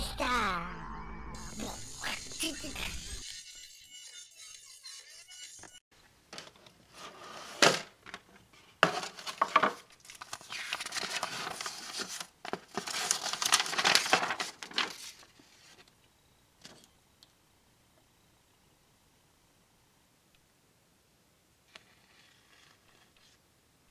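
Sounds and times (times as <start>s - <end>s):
paper and card rustling: 6.4s - 15.9s, 21.7s - 23.4s.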